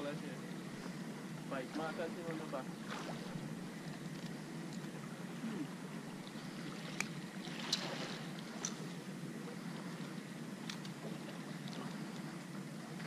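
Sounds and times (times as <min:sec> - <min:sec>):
breeze: 0:00.0 - 0:13.0
open water washing: 0:00.0 - 0:13.0
fishing tackle clicks: 0:10.6 - 0:11.0.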